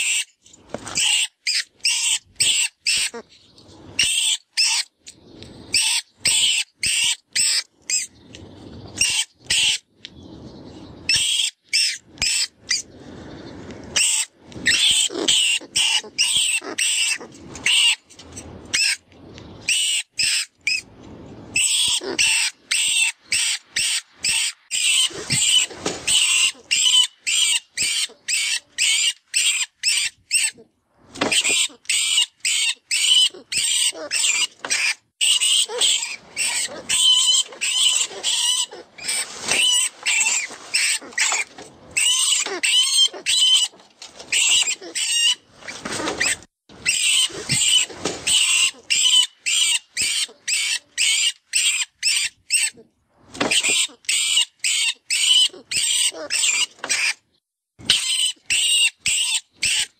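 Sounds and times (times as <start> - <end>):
shrill rat-like squeaks: 0.9 - 3.3, 5.7 - 8.1, 11.1 - 12.8, 21.6 - 30.6, 31.3 - 52.8, 53.5 - 57.2, 57.9 - 59.9
rough squealing: 21.5 - 52.8.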